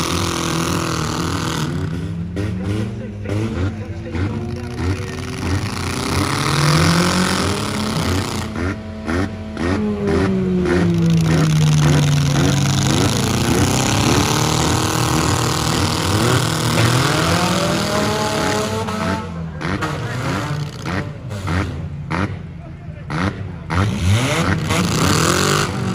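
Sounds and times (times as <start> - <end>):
car engines revving: 0.0 - 25.9.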